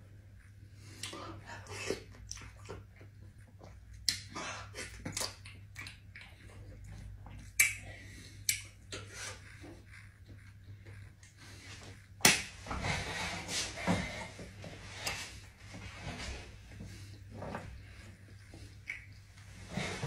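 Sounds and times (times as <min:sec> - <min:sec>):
steady low hum: 0:00.0 - 0:20.0
chewing and lip smacks: 0:00.4 - 0:12.0, 0:18.4 - 0:19.2.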